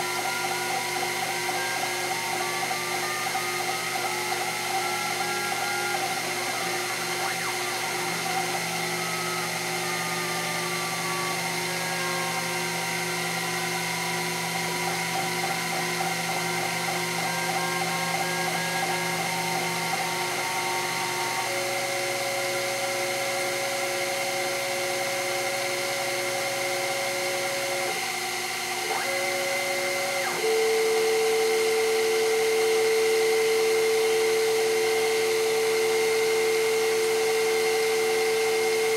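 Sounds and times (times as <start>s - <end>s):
loud steady tone: 0.0s - 31.4s
milling spindle whine: 0.0s - 38.9s
stepper motor tones: 0.0s - 38.9s.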